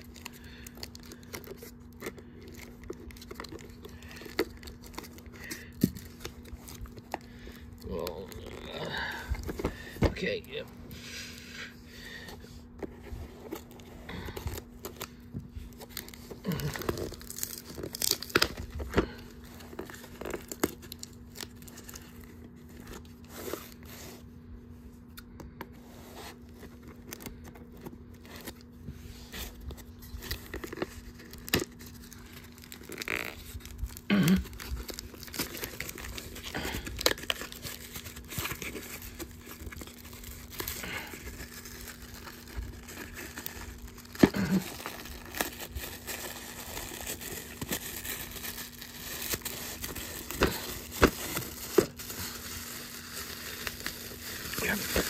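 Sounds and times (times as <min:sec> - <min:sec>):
packaging tearing and crinkling: 0:00.0 - 0:10.6, 0:12.8 - 0:24.3, 0:26.2 - 0:55.0.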